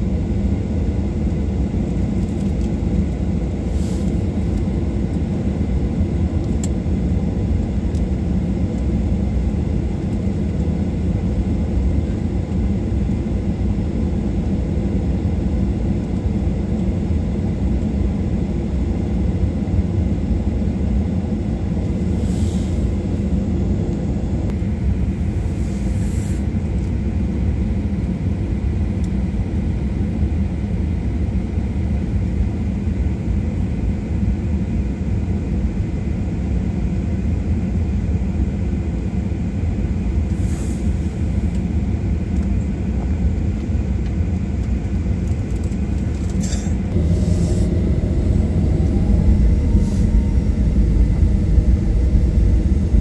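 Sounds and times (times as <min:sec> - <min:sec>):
faint steady whine: 0:00.0 - 0:53.0
jet engine rumble: 0:00.0 - 0:53.0
jet engines spooling up: 0:21.3 - 0:26.6, 0:45.2 - 0:53.0.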